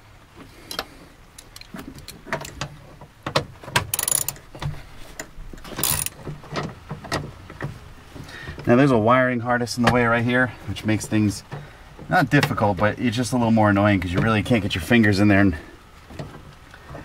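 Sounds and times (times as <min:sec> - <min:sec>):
ratchet rasping runs: 0:03.9 - 0:04.4, 0:05.8 - 0:06.2
hand ratchet clicking: 0:03.9 - 0:04.5, 0:05.8 - 0:06.2.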